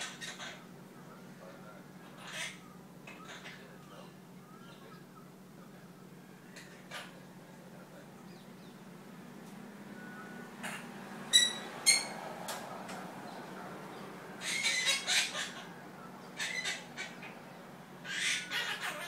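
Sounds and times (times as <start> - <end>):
parakeet chattering babble: 0.0 - 0.7, 2.0 - 5.1, 6.5 - 7.2, 10.6 - 12.2, 14.4 - 19.0
parakeet whistled chirps: 11.3 - 12.1.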